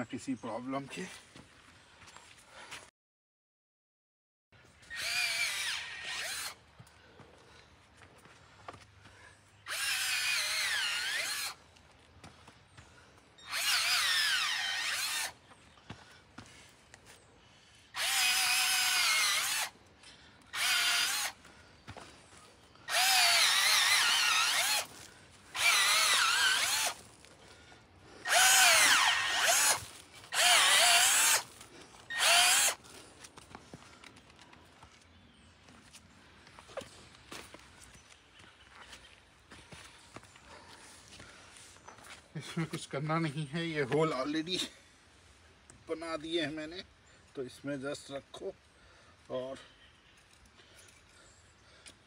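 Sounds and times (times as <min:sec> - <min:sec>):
cordless drill whining: 0:04.7 - 0:06.6, 0:09.6 - 0:11.6, 0:13.4 - 0:15.5, 0:17.7 - 0:21.5, 0:22.7 - 0:27.0, 0:28.2 - 0:32.9.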